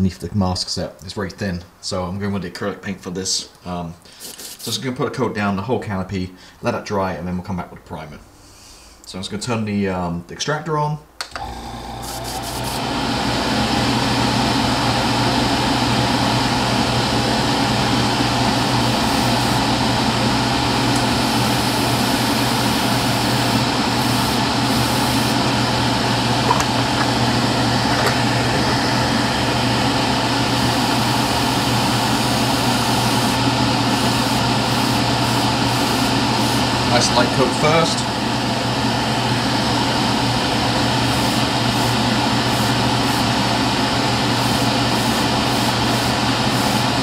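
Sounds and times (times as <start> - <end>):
extractor fan humming: 11.2 - 47.0.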